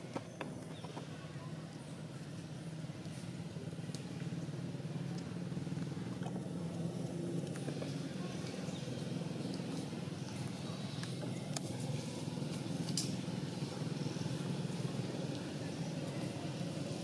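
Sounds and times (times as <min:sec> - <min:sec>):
motor engine humming: 0:00.0 - 0:17.0
faint clicks: 0:03.9 - 0:04.3.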